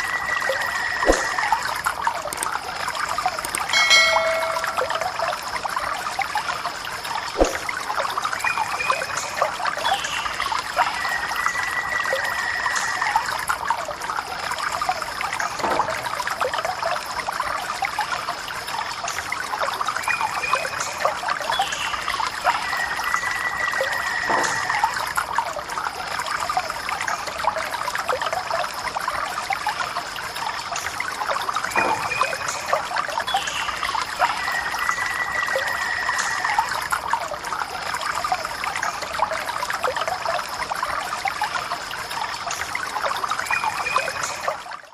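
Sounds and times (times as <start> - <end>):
water trickling from tap: 0.0 - 44.9.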